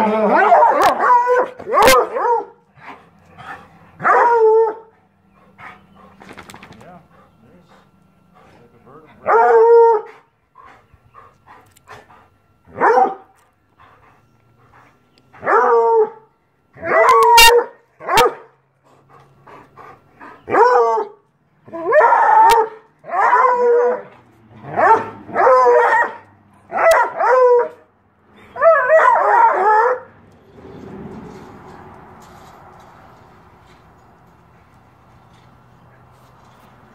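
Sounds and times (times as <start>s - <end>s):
dog baying: 0.0s - 27.8s.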